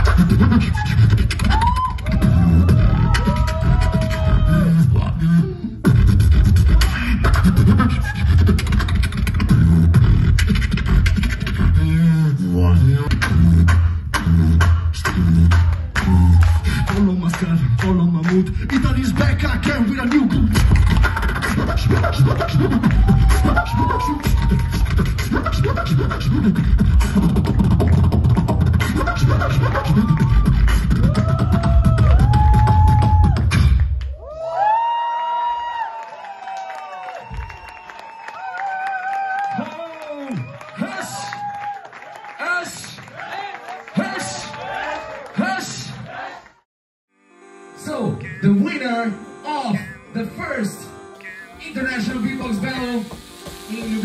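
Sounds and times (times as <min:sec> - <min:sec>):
amplified beatboxing: 0:00.0 - 0:34.1, 0:51.1 - 0:54.0.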